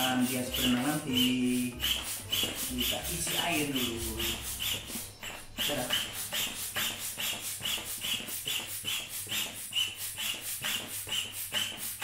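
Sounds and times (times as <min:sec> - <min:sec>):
foot air pump squeaky puffs: 0:00.0 - 0:12.0.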